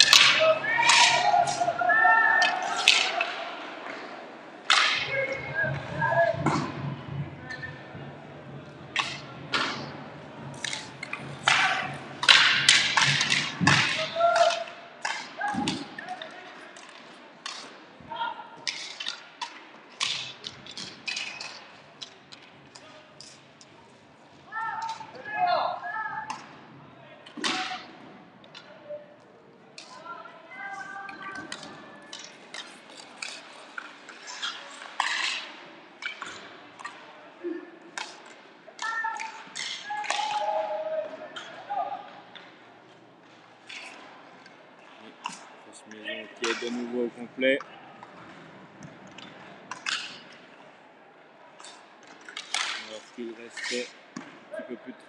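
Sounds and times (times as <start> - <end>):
stick and puck knocks: 0.0 - 1.6, 10.6 - 15.9, 27.3 - 27.9, 48.0 - 50.4, 51.6 - 52.9
hockey sticks clacking: 0.0 - 18.0, 18.6 - 50.8, 51.5 - 55.0.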